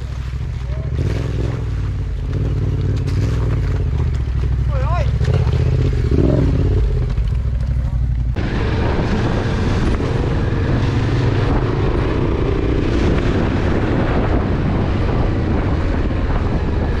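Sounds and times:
motorcycle engine running: 0.0 - 17.0
wind rushing over camera: 8.2 - 17.0.

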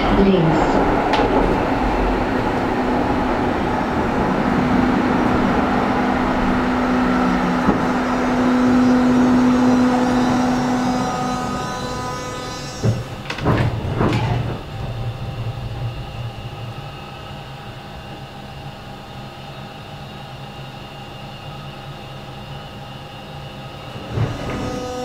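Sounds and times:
tram low hum and rumble: 0.0 - 25.0.

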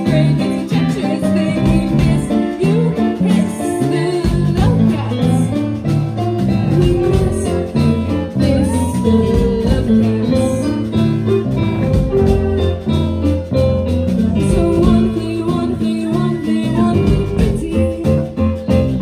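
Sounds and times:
rock band playing: 0.0 - 19.0
girls singing: 6.7 - 10.7.

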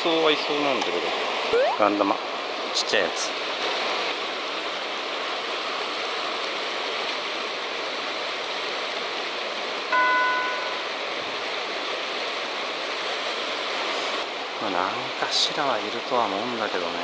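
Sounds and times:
river water rushing: 0.0 - 17.0
clear ringing tone: 9.9 - 11.0.

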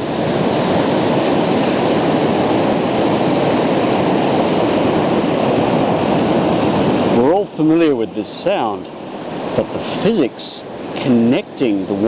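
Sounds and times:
ocean waves breaking: 0.0 - 12.0.

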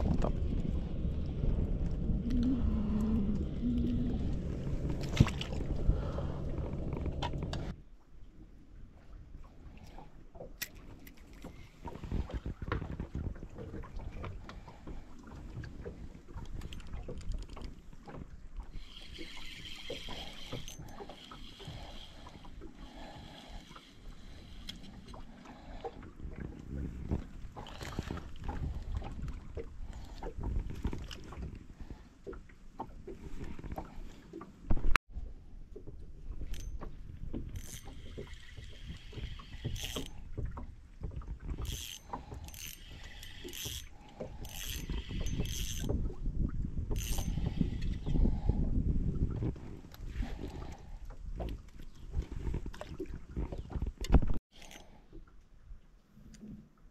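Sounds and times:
low rumble: 0.0 - 7.8
wind buffeting microphone: 0.0 - 7.8, 43.6 - 54.4
water lapping against boat hull: 0.0 - 56.9
fishing reel clicking: 18.8 - 22.4, 37.5 - 40.1, 41.6 - 45.9, 46.9 - 48.1.

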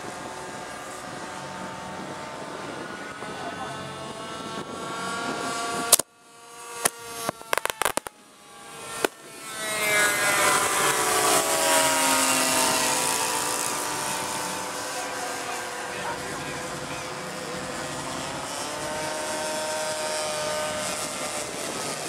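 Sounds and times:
model plane engines droning: 0.0 - 22.0
model plane passing low: 0.0 - 22.0
pyrotechnic pops: 6.8 - 8.1.

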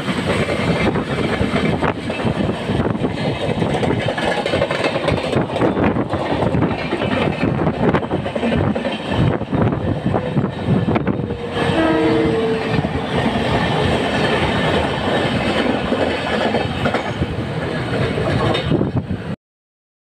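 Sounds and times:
steel wheels on adjacent track: 0.0 - 19.4
train running on rails: 0.0 - 19.4
train horn: 11.1 - 13.0.

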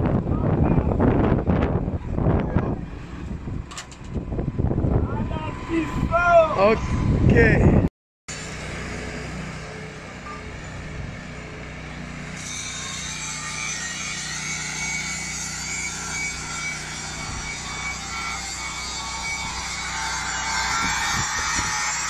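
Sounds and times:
heavy equipment diesel engines: 1.8 - 22.0.

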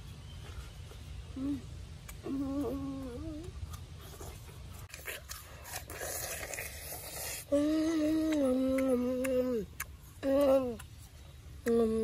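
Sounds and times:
boy chewing juicy fruit: 0.0 - 12.0
boy humming mmm: 1.3 - 3.8, 5.7 - 11.0, 11.6 - 12.0.

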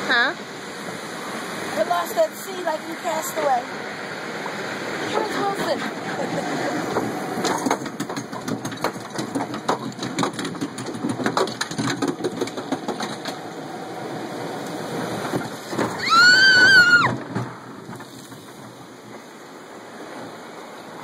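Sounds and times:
boat clattering in water trough: 5.0 - 14.0, 14.8 - 19.3
person screaming: 16.0 - 17.1.

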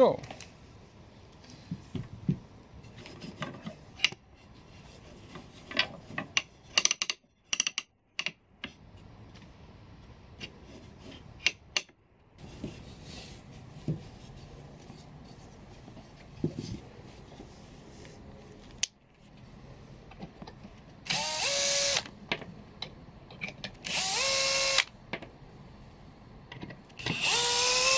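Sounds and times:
wooden loom clicks and knocks: 5.7 - 8.4.

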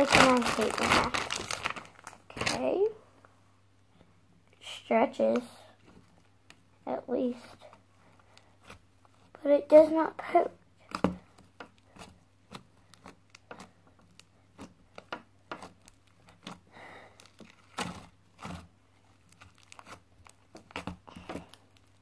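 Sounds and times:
slime crackling and popping: 0.0 - 2.8, 10.8 - 22.0.

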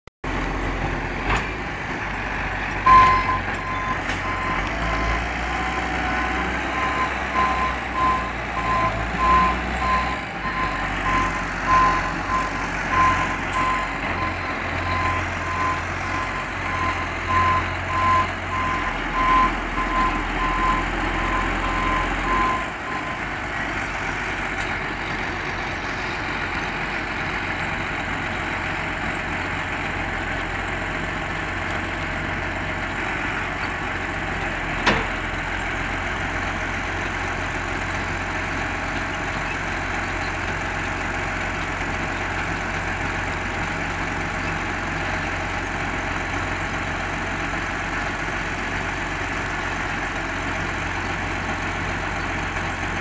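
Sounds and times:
tractor diesel engine idling: 0.2 - 53.0
electronic warning beeps: 2.9 - 23.2.

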